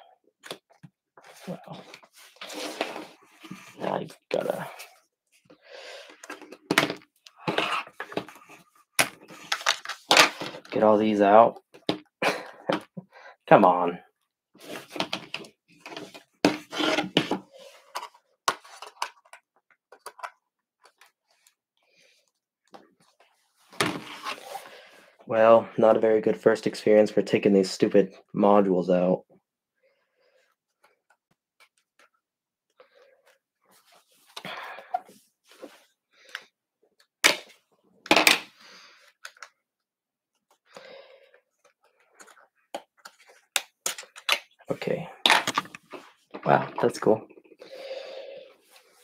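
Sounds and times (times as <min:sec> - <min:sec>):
scraping and straining of cards: 0:07.4 - 0:10.9, 0:14.6 - 0:21.6.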